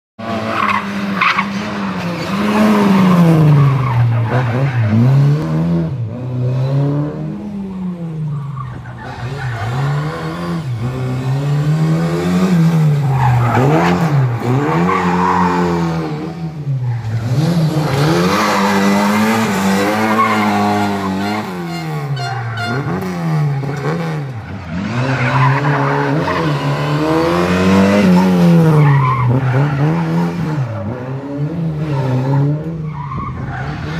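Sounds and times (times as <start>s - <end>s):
tyres skidding on asphalt: 0.2s - 33.9s
car engine revving hard: 9.2s - 22.1s, 22.7s - 32.8s.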